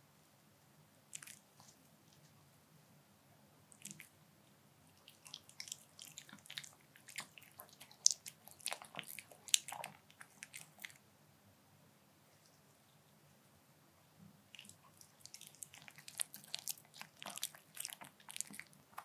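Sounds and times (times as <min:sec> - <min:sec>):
dog chewing wet clicks and smacks: 0:01.1 - 0:01.4, 0:05.0 - 0:11.0, 0:14.5 - 0:19.0.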